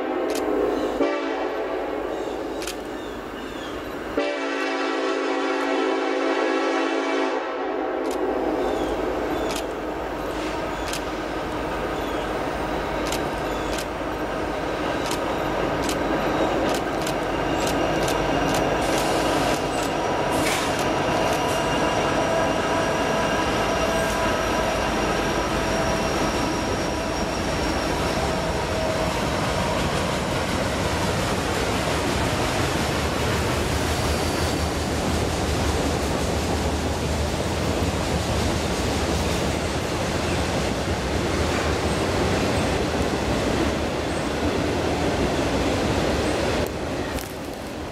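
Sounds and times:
diesel locomotives passing: 0.0 - 47.9
rumble of wheels on rail: 0.0 - 47.9
high wheel squealing: 16.2 - 29.3.

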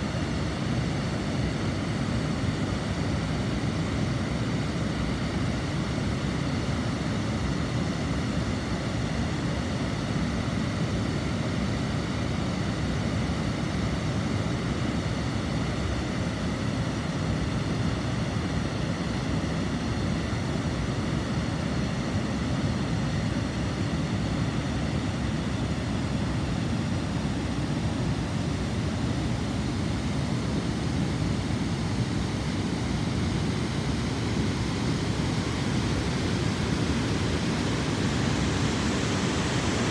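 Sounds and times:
water rushing over weir: 31.7 - 39.9.

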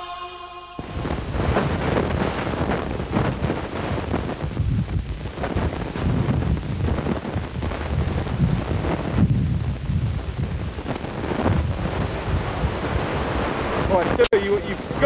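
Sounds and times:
wind buffeting microphone: 0.8 - 13.6.

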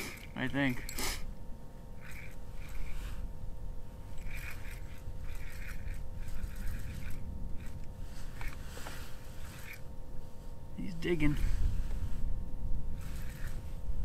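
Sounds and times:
fishing reel scraping: 0.0 - 1.3, 2.0 - 3.2, 4.1 - 8.6, 9.3 - 9.9, 13.0 - 13.7
wind rumbling on microphone: 1.4 - 14.0.

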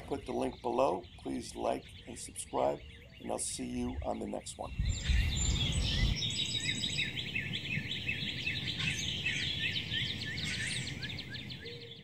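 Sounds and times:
songbirds chirping: 0.0 - 12.0.

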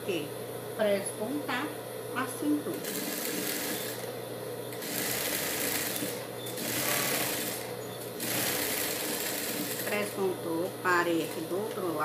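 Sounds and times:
steady motor hum: 0.0 - 12.0
sewing machine stitching: 2.8 - 4.1, 4.8 - 10.2.

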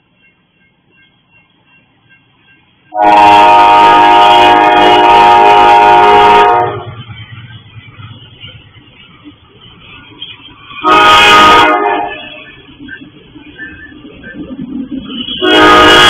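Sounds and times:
crossing bell dinging: 0.0 - 3.1, 6.4 - 15.8
train rumble: 0.0 - 16.0
locomotive air horn blast: 2.9 - 6.9, 10.8 - 12.5, 15.3 - 16.0.

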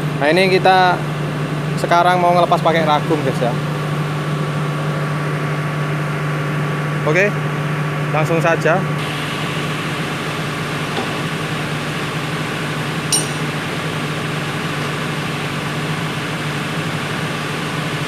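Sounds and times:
low mechanical hum: 0.0 - 18.0
metallic clink: 13.1 - 13.6.

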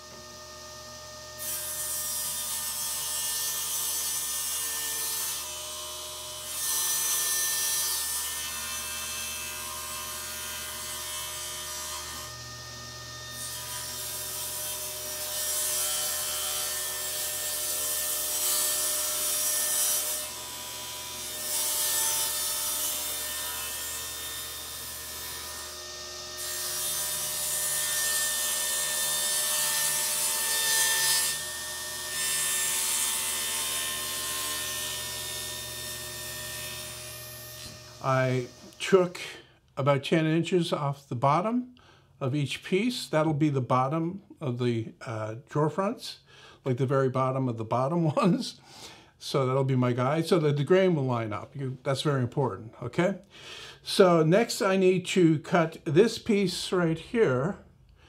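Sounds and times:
table saw motor hum: 0.0 - 38.8
saw blade cutting wood: 0.0 - 39.3.

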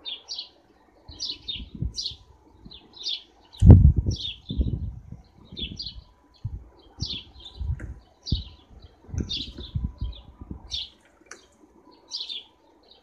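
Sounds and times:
sparrows chirping: 0.0 - 13.0
low thumps and flutters: 3.6 - 10.7.

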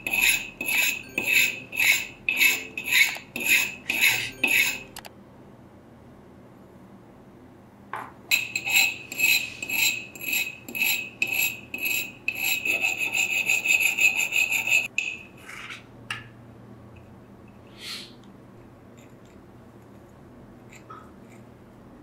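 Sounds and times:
metal scraping on sharpening stone: 0.0 - 5.0, 8.3 - 15.2, 20.7 - 21.4.

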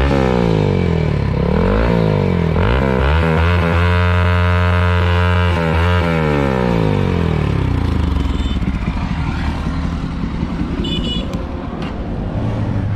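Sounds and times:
motorcycle engine idle burble: 7.7 - 11.5.

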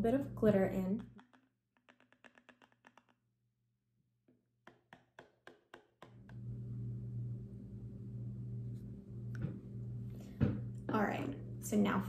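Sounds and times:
shaker tapping plastic bottle: 1.0 - 3.2
steady low hum: 6.2 - 12.0.

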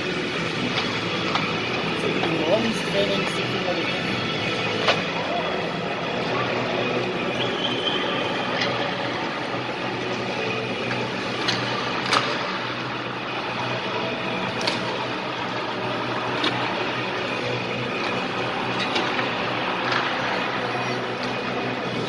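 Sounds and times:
mechanical hum and hiss: 0.0 - 22.0
hockey sticks clacking on ice: 11.4 - 12.4.

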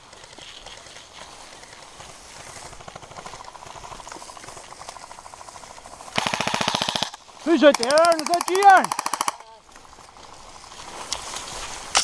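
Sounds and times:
dry weed stalks rustling: 0.0 - 12.0
airsoft gunfire ticking: 5.0 - 9.5.

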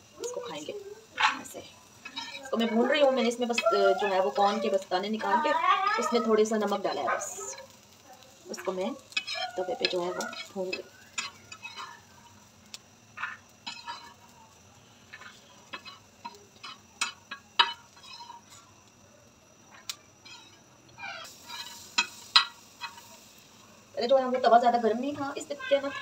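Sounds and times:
sharp clicks of kernels: 0.2 - 26.0
corn kernels scraped on griddle: 1.2 - 14.4, 15.0 - 18.7, 19.7 - 23.5.

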